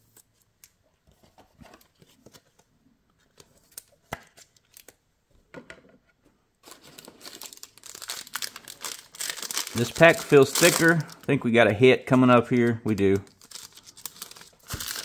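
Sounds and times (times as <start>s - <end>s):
trading cards shuffling: 6.7s - 11.3s.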